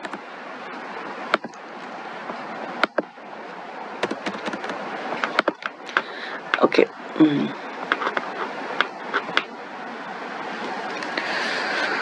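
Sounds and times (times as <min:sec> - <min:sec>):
sharp clicks: 0:04.0 - 0:06.0.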